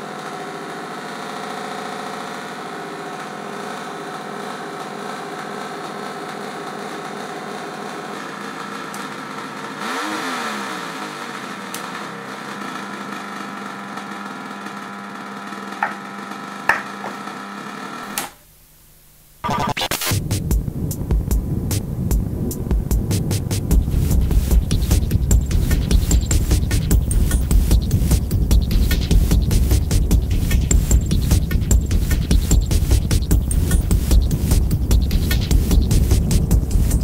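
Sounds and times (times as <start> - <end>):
pulsing electronic buzzing drone: 19.4 - 37.0
rhythmic electronic bursts: 19.4 - 37.0.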